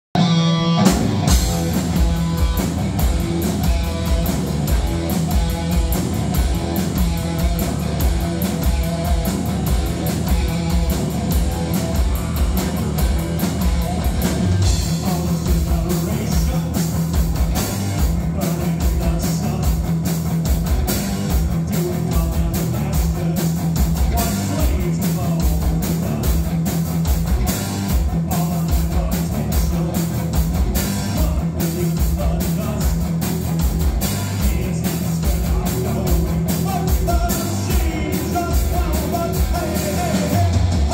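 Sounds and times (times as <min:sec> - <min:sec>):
electric bass: 0:00.0 - 0:40.9
distorted electric guitar: 0:00.1 - 0:40.9
drum kit beat: 0:00.2 - 0:40.9
lead singer's vocals: 0:34.3 - 0:40.9.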